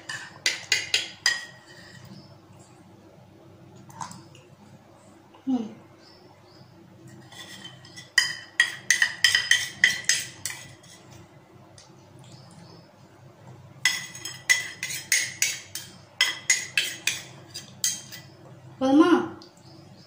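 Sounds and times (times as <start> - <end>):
spoon clinking against metal bowl: 0.0 - 1.6, 7.6 - 10.8, 13.8 - 18.3.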